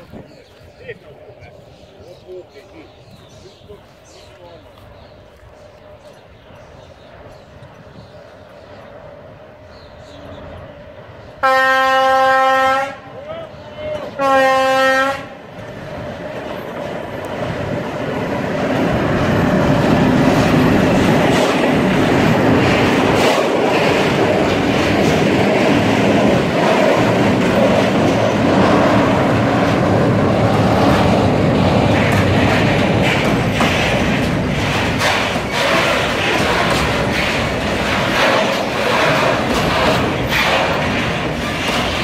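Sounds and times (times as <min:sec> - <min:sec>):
freight train rolling past: 0:00.0 - 0:42.0
wheels clacking over rail joints: 0:13.8 - 0:42.0.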